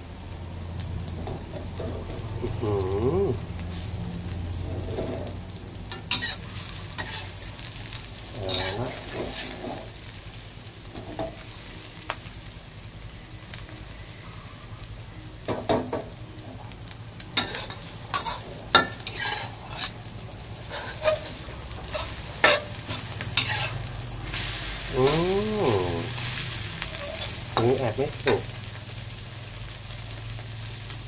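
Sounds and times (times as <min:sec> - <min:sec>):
omelette sizzling in wok: 0:00.0 - 0:31.0
metal spatula scraping wok: 0:01.1 - 0:02.5, 0:04.5 - 0:10.1, 0:17.2 - 0:28.5.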